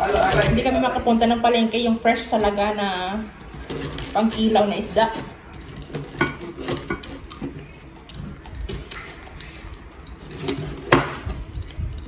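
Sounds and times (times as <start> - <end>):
knife scraping cutting board: 2.2 - 11.7.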